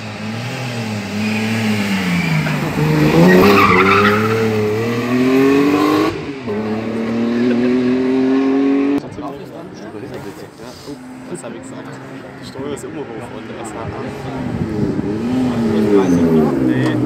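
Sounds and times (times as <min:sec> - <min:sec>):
rally car engine accelerating: 0:00.0 - 0:09.1, 0:14.1 - 0:17.0
tyre squeal: 0:01.2 - 0:04.5.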